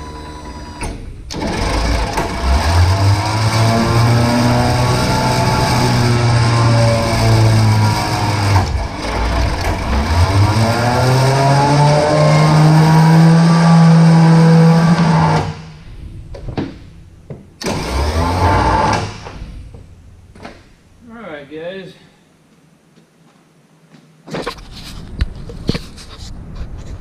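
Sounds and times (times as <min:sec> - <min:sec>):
electric hoist motor humming: 0:00.0 - 0:20.8.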